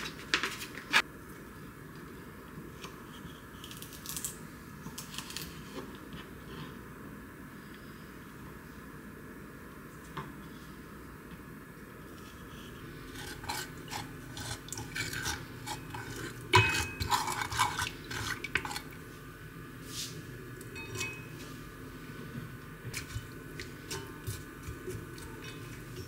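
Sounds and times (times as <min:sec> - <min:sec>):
wooden spoon scraping a pot: 0:12.2 - 0:19.0.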